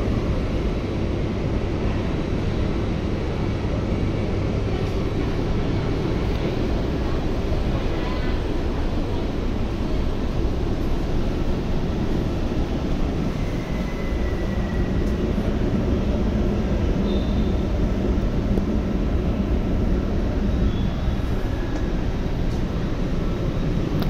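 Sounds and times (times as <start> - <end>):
ventilation hum and rush: 0.0 - 24.0
faint high whine: 13.1 - 15.6, 17.0 - 17.7.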